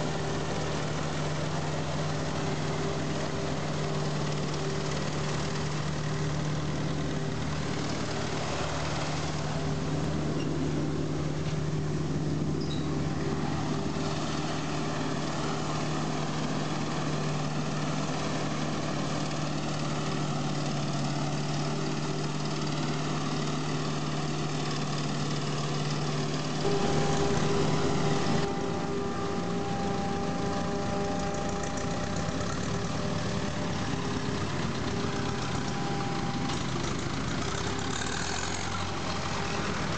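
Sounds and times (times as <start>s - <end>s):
forage harvester and tractor engines: 0.0s - 39.9s
higher machine tone: 25.7s - 39.9s.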